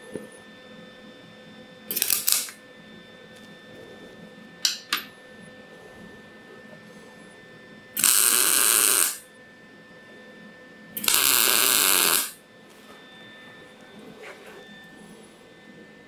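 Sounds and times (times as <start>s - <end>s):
welding arc bursts: 1.9s - 2.6s, 8.0s - 9.2s, 11.0s - 12.4s.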